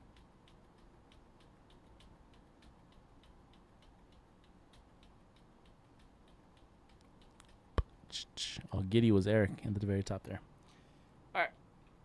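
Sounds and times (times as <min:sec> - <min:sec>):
mouse scroll wheel ticking: 0:00.0 - 0:07.7.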